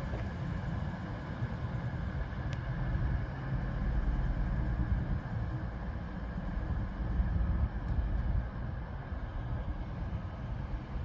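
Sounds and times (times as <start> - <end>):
diesel train engines rumbling: 0.0 - 11.0.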